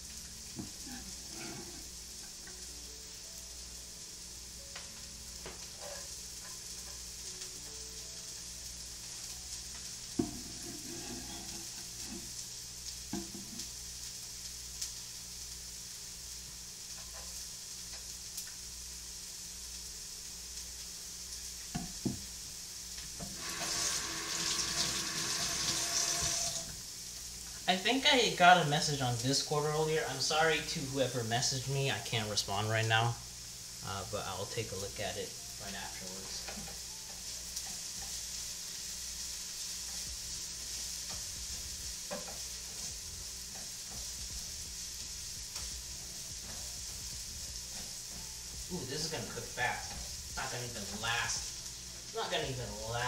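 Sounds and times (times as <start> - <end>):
shallots sizzling in oil: 0.0 - 53.0
tap running: 23.2 - 26.8.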